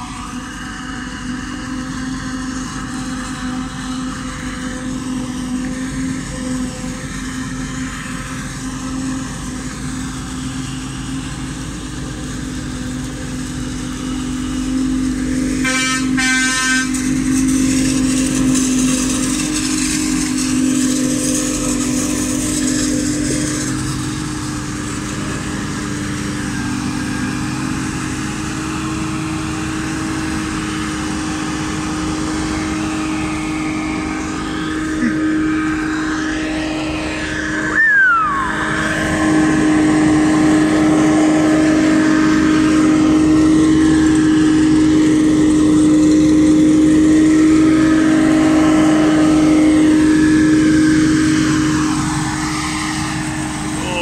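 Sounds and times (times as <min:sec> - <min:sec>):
harvester engine drone: 0:00.0 - 0:54.0
brief falling whine: 0:32.3 - 0:43.3.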